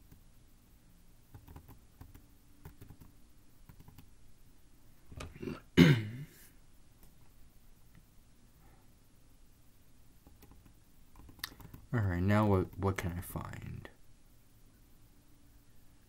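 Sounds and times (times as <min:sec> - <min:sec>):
computer mouse clicks: 0:01.3 - 0:03.1, 0:03.7 - 0:04.1, 0:10.2 - 0:11.9
person clearing throat: 0:05.3 - 0:06.5.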